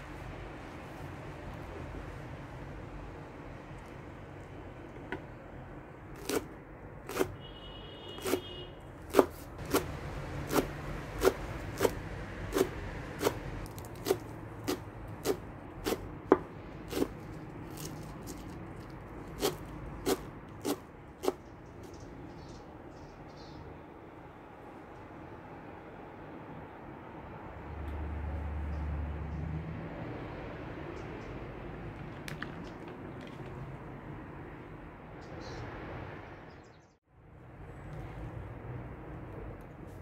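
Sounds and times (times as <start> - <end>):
knife chopping on wooden board: 6.2 - 6.5, 7.1 - 7.4, 8.2 - 18.5, 19.3 - 21.5.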